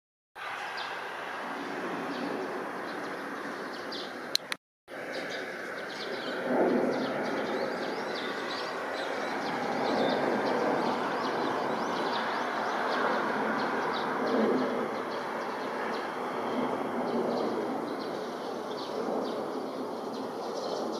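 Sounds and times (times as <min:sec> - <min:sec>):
birds chirping: 0:00.4 - 0:20.9
distant jet engine roar: 0:00.4 - 0:20.9
click: 0:04.3 - 0:04.6.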